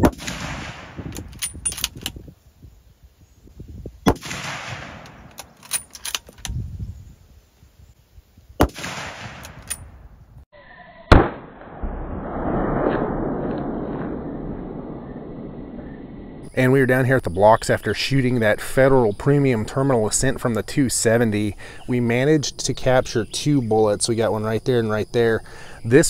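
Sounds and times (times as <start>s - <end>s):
rifle shots: 0.0s - 1.8s, 4.0s - 6.0s, 8.6s - 9.9s, 11.1s - 14.6s
rifle bolt clicking: 5.0s - 6.5s.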